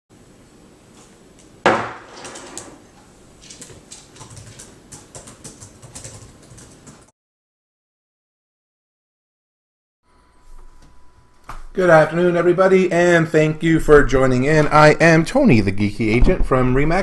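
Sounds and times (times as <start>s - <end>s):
thump on wooden desk: 1.7s - 2.6s
laptop keys typing: 3.4s - 7.1s.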